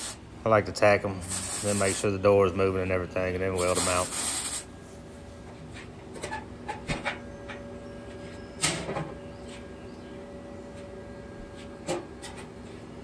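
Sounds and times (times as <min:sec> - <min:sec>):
welder arc crackling: 0:01.3 - 0:02.1.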